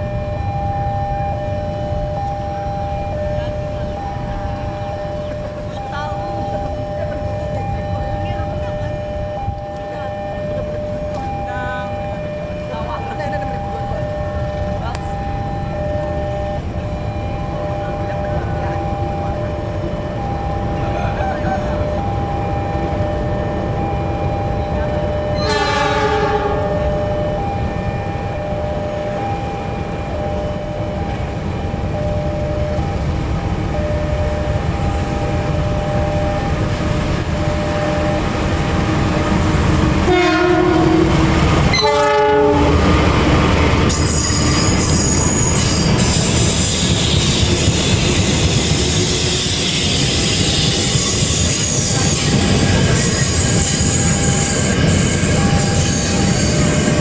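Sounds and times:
high whine: 0.0 - 57.0
locomotive rumbling past: 0.0 - 57.0
train horn: 22.8 - 31.2, 39.2 - 43.1, 43.9 - 57.0
train wheels rattling and squealing: 43.8 - 57.0.

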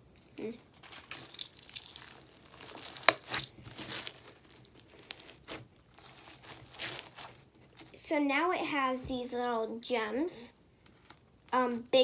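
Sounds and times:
crunchy slime crackling: 0.3 - 8.0, 11.1 - 12.0.

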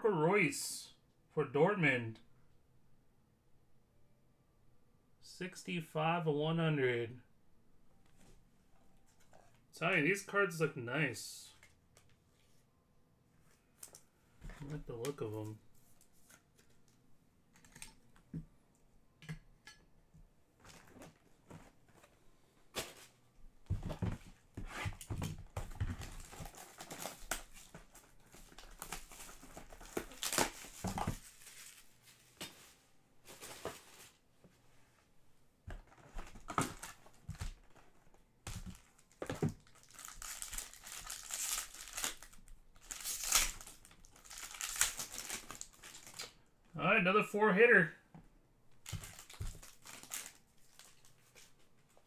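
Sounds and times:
cellophane crinkling and tearing: 25.9 - 32.2, 35.9 - 46.4, 48.8 - 51.6
foil pack crinkling: 38.5 - 46.3, 48.8 - 51.3.

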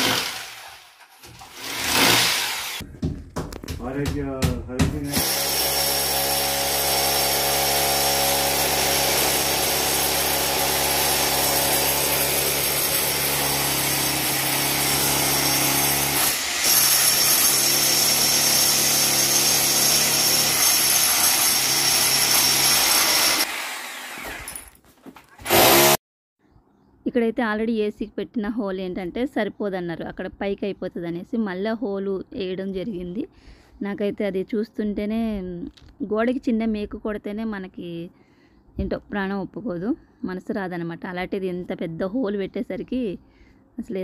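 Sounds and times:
power drill boring into wall: 0.0 - 2.8, 5.1 - 24.7, 25.4 - 26.0.

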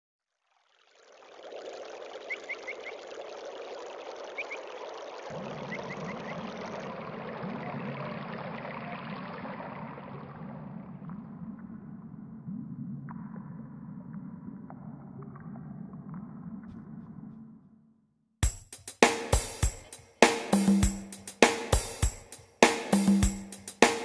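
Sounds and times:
running water: 0.3 - 11.6.

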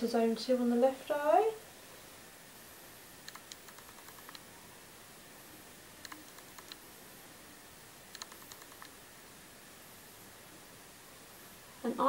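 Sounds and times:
low steady hiss: 0.0 - 12.0
tweezers clicking: 3.2 - 4.4, 6.0 - 6.8, 8.1 - 9.0.

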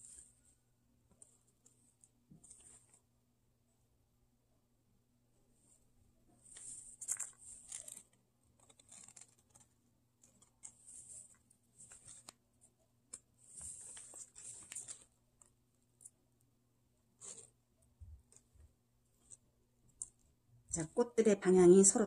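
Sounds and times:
scratchy rustling of clay: 5.7 - 16.3, 17.0 - 20.4.

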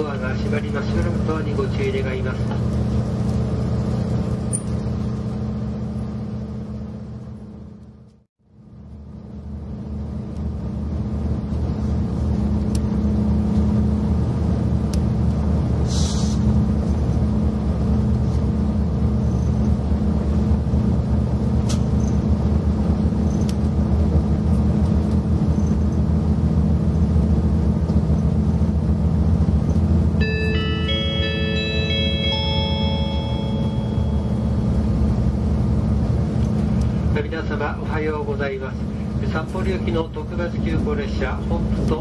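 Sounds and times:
train engine rumbling: 0.0 - 42.0
short hiss: 15.8 - 16.5.

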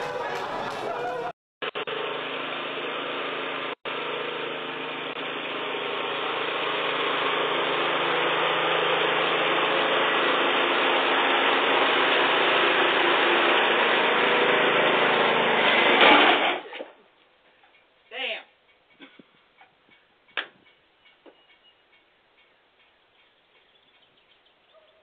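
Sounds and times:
riding lawn mower engine running: 0.0 - 16.8.

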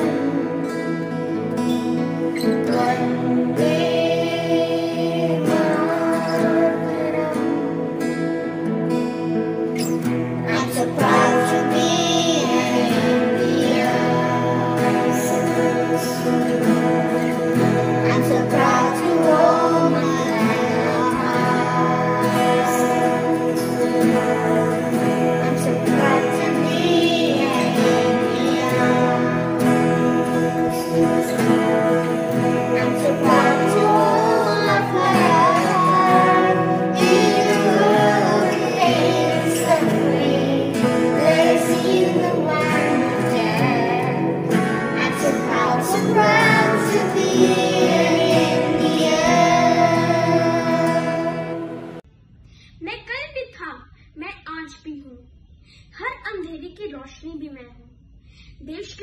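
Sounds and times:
children singing: 0.0 - 52.0
instrumental accompaniment: 0.0 - 52.0.

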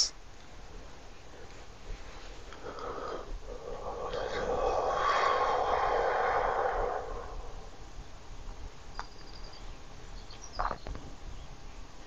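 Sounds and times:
faint high chirps: 8.8 - 11.9.

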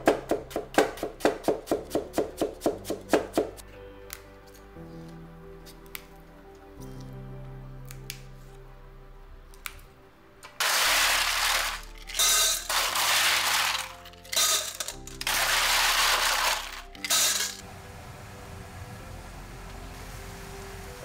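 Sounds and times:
ice cubes clattering: 10.5 - 17.6.

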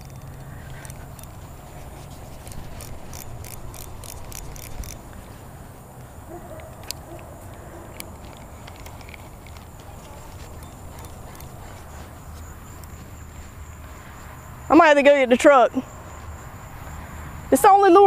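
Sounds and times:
spinning reel clicking: 2.4 - 5.0.

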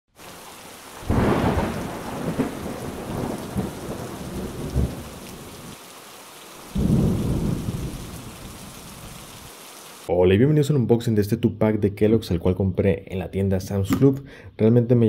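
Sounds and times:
steady rain: 0.1 - 10.1
thunder rolling: 1.0 - 5.5, 6.7 - 9.1.

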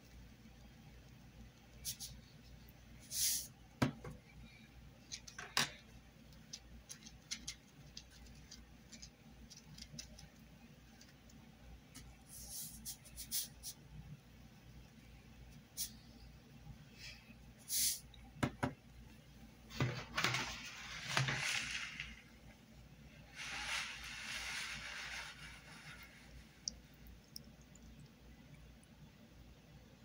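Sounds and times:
shaker bottle hissing shakes: 23.4 - 26.4.

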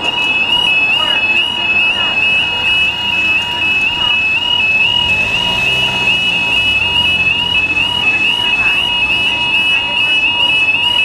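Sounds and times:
level crossing warning alarm: 0.0 - 11.0
car engine hum: 1.4 - 10.0.

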